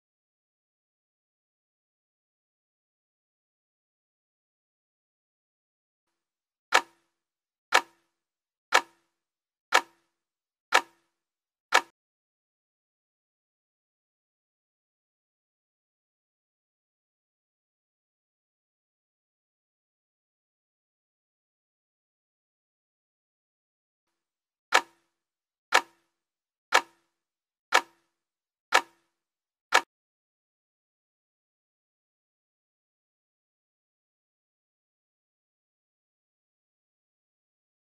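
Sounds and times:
timer ticks: 0:06.7 - 0:12.0, 0:24.7 - 0:29.9.

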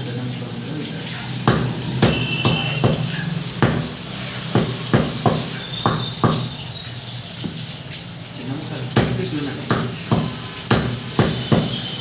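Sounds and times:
knife chopping on wooden block: 0:01.5 - 0:03.9, 0:09.0 - 0:11.8.

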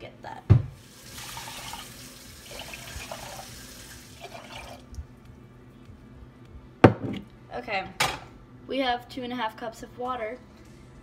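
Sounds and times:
water pouring into pot: 0:00.8 - 0:05.0.

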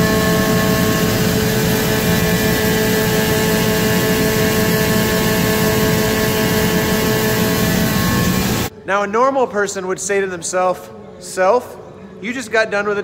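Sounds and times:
constant humming tones: 0:00.0 - 0:08.7
machinery low rumble: 0:00.0 - 0:08.7.

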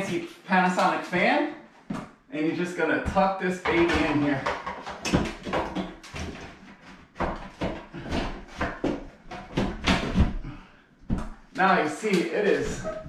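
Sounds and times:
fan knocking and scraping in housing: 0:03.1 - 0:10.5.

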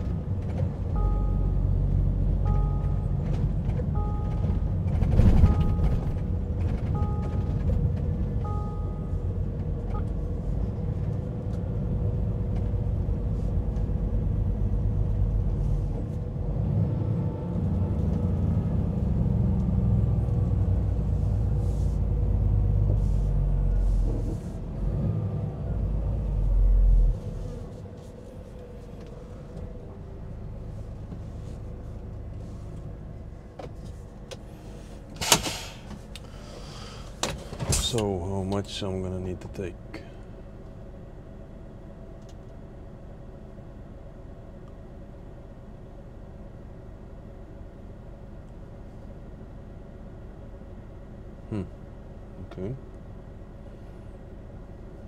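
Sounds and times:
truck engine rumbling: 0:00.0 - 0:55.0
two-tone beeps: 0:01.0 - 0:01.8, 0:02.4 - 0:03.2, 0:04.0 - 0:04.6, 0:07.0 - 0:07.6, 0:08.4 - 0:09.2.

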